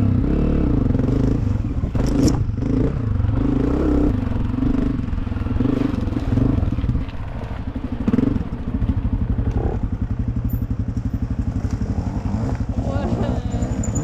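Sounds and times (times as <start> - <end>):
dirt bike engine running: 0.0 - 14.0.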